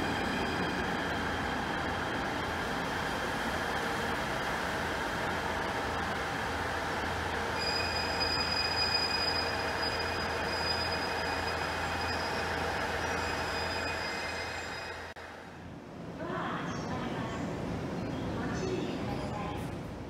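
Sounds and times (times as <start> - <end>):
electric train high-pitched whine: 0.0 - 15.2.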